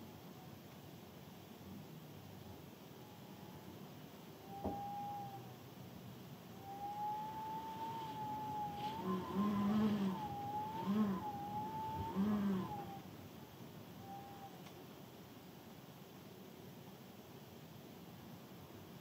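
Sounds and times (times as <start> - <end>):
cat yowling: 6.7 - 13.0
cats moaning: 8.0 - 13.0
rain hiss: 12.0 - 19.0.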